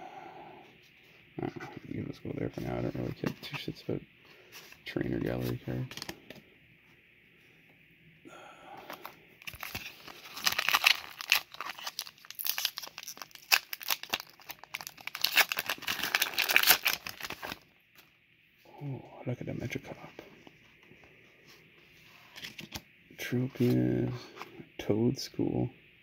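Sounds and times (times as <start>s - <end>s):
foil pack crinkling and tearing: 8.8s - 17.6s.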